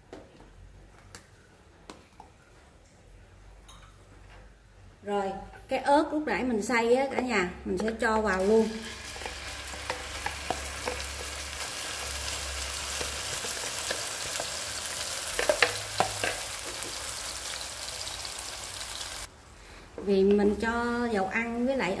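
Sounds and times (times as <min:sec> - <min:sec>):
chili paste sizzling in oil: 0:08.4 - 0:19.3.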